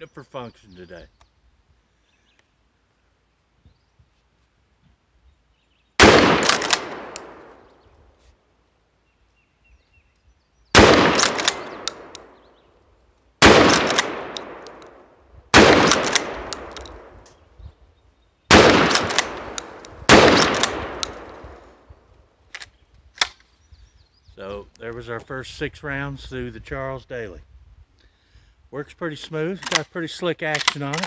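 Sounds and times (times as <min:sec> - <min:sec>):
shotgun shots echoing: 0:06.0 - 0:07.7, 0:10.7 - 0:12.4, 0:13.4 - 0:17.2, 0:18.5 - 0:21.9
shotgun slide racking: 0:30.5 - 0:31.0.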